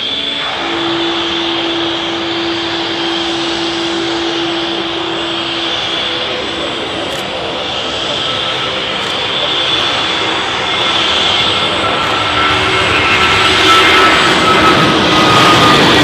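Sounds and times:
jet engine whine: 0:00.0 - 0:16.0
low hum: 0:00.0 - 0:16.0.

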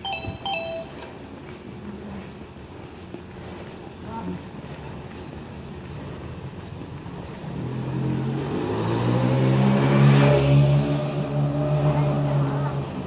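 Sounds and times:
vehicle passing by: 0:07.0 - 0:13.0.

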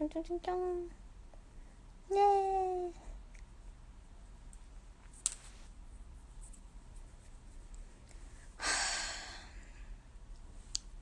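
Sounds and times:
person sighing: 0:08.6 - 0:09.6.

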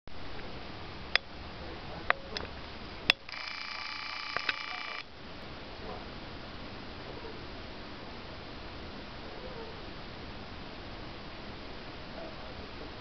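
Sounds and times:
camera zoom motor whining: 0:03.2 - 0:05.1
camera handling clicks: 0:04.3 - 0:05.0.

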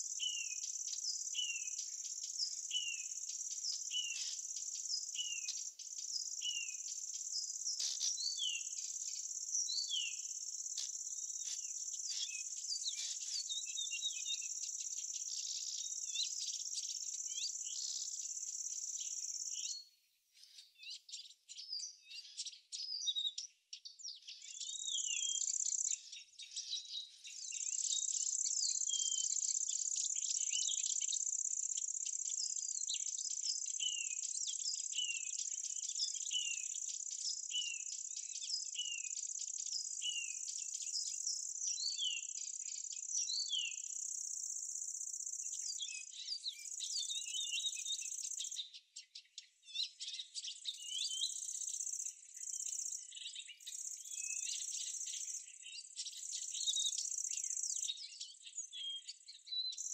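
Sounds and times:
birds chirping: 0:00.0 - 0:23.4.

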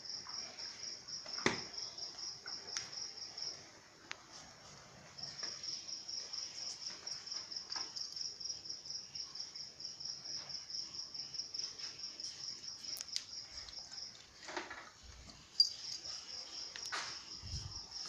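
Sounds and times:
insect chirping trill: 0:15.3 - 0:18.0.

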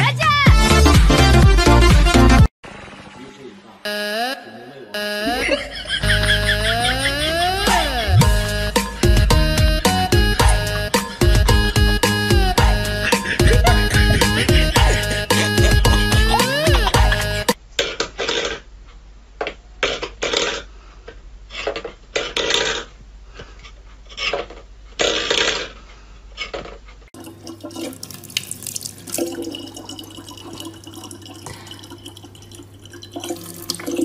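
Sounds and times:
tap water running into bottle: 0:27.2 - 0:34.0.

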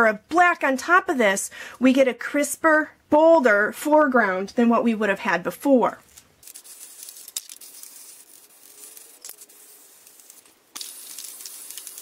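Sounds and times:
spray paint can hissing: 0:06.4 - 0:12.0.

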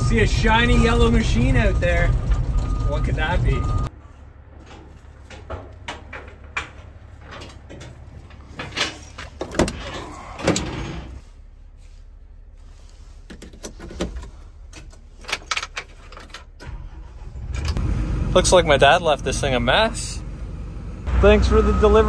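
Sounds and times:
clicks knocks and scuffs of climbing: 0:04.5 - 0:10.3
cab door opening: 0:08.7 - 0:11.2.

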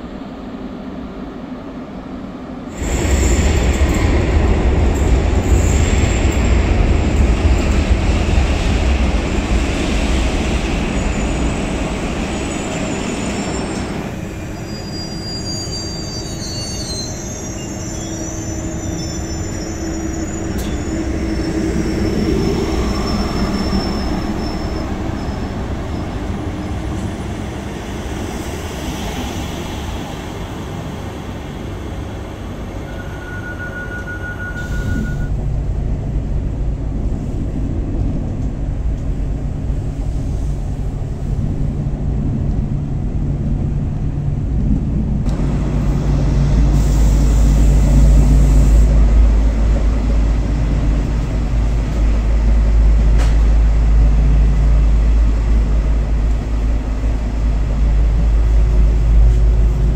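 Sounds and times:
train hum and rumble: 0:00.0 - 0:59.9
short steady beep: 0:32.8 - 0:35.3.

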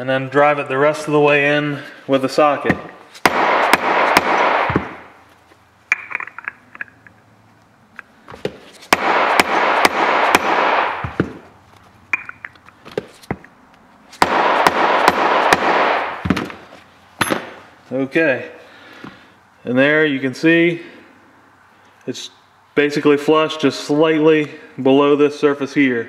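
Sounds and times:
hammer striking metal socket: 0:05.9 - 0:07.0, 0:12.1 - 0:12.8.

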